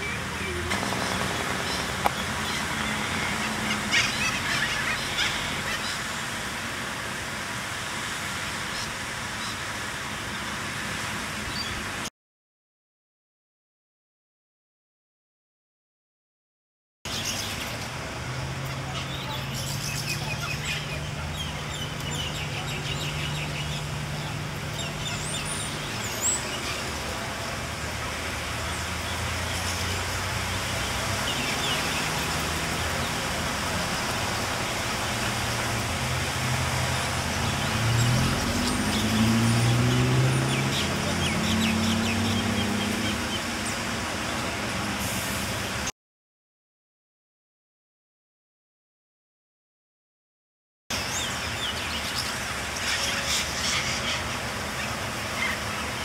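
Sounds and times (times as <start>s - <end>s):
corellas calling: 0.0s - 6.2s, 51.2s - 56.0s
city traffic hum: 0.0s - 12.1s, 17.1s - 45.9s, 50.9s - 56.0s
engine rising in pitch: 37.2s - 43.4s.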